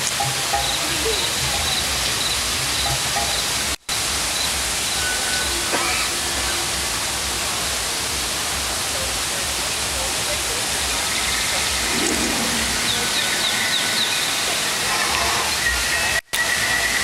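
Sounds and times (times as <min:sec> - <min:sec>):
rushing background noise: 0:00.0 - 0:17.0
faint voices: 0:05.4 - 0:17.0.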